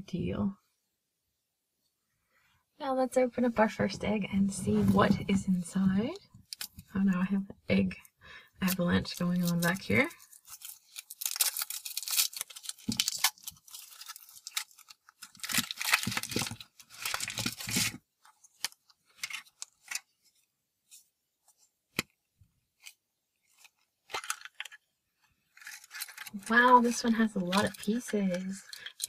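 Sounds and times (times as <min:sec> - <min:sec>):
foil wrapper crinkling and tearing: 0:08.6 - 0:20.2, 0:22.8 - 0:24.8, 0:25.5 - 0:29.0
chocolate shell breaking: 0:10.2 - 0:16.4.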